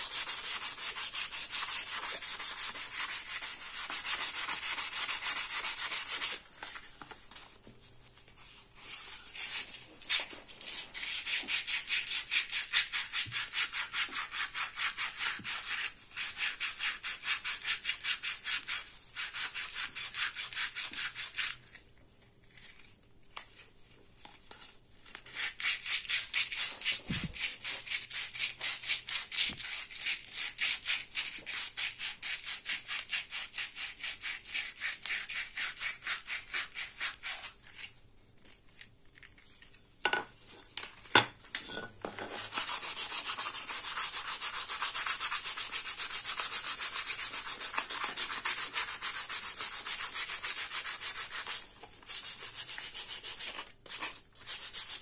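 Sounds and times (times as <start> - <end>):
sandpaper rubbing wood: 0.0 - 6.4, 42.3 - 55.0.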